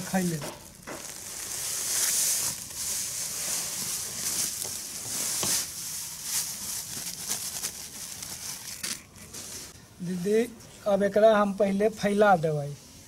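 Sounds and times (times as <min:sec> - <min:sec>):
plastic sack rustling: 0:00.0 - 0:09.8.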